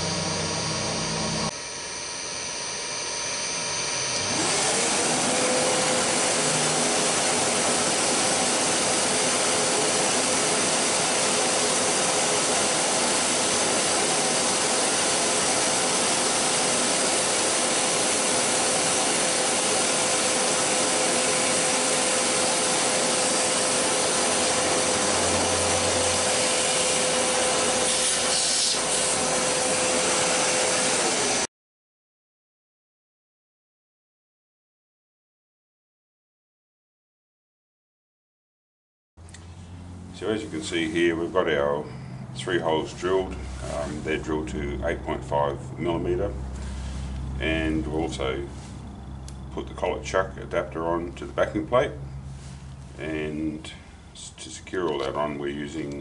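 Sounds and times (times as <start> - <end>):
machine hum: 0.0 - 15.8, 19.4 - 31.4, 39.2 - 56.0
shop vacuum motor whine: 0.0 - 31.5, 39.2 - 54.2.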